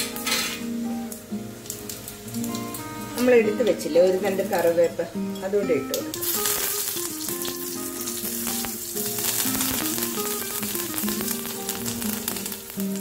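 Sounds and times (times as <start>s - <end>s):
leaves sizzling in hot oil: 0.0s - 13.0s
sharp crackles: 6.0s - 13.0s.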